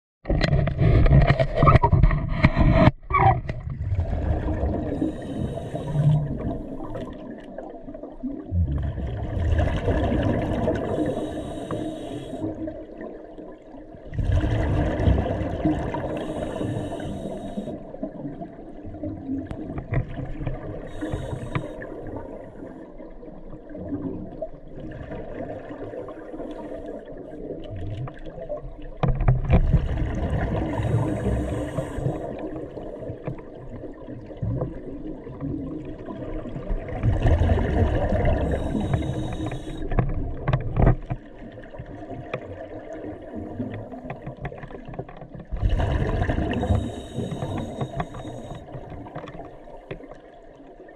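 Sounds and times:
murky underwater noise: 0.2s - 50.9s
underwater bubbles gurgling: 0.2s - 50.9s
hissing regulator breaths: 4.9s - 6.9s, 10.7s - 12.6s, 16.0s - 17.8s, 20.8s - 21.9s, 30.7s - 32.4s, 38.2s - 40.0s, 46.5s - 48.8s.

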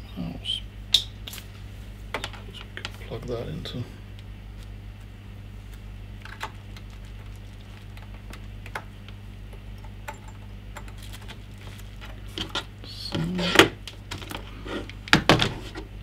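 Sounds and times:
steady low hum: 0.0s - 16.0s
computer mouse and keyboard clatter: 6.2s - 9.2s, 9.8s - 12.7s.

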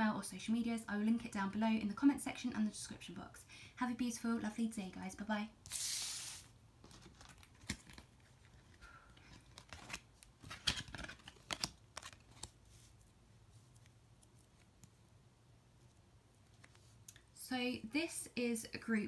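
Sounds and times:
cards scraping: 5.7s - 13.0s.

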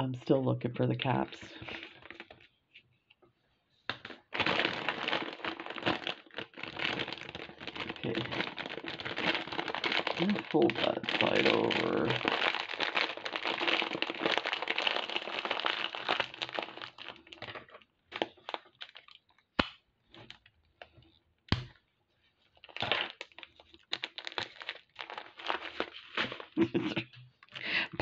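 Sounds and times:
plastic bag crinkling: 1.6s - 2.4s, 4.0s - 19.4s, 22.4s - 27.6s.

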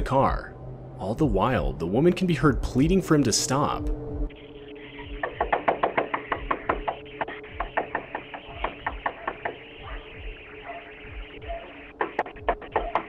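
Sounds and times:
low music drone: 0.0s - 12.7s
knocking and banging on door: 5.1s - 9.6s.

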